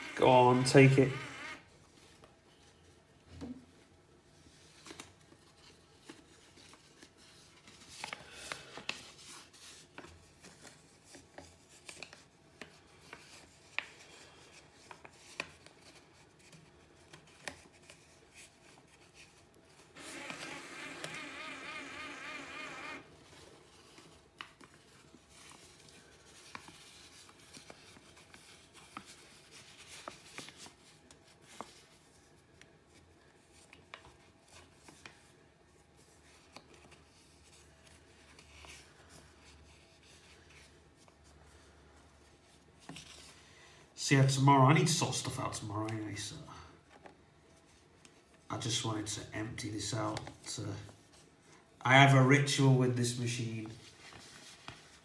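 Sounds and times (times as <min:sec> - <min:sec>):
small electric motor whirring: 0:00.0 - 0:01.6, 0:20.0 - 0:23.0
paper rustling: 0:04.3 - 0:21.6, 0:23.0 - 0:43.4, 0:44.9 - 0:55.0.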